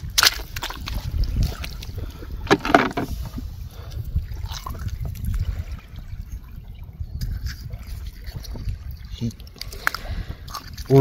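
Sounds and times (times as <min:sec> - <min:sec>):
wet mud squelching: 0:00.0 - 0:03.2
wind rumbling on microphone: 0:00.0 - 0:11.0.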